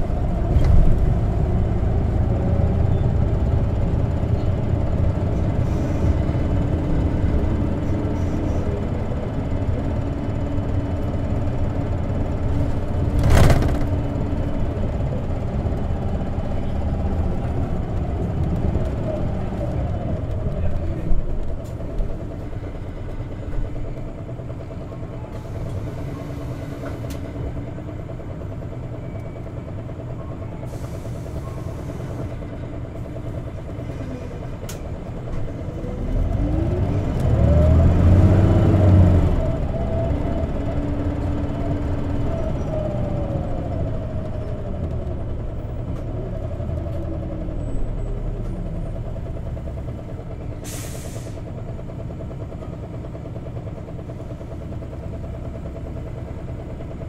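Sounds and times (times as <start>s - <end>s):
bus engine from inside: 0.0s - 57.0s
short air hisses: 50.6s - 51.4s.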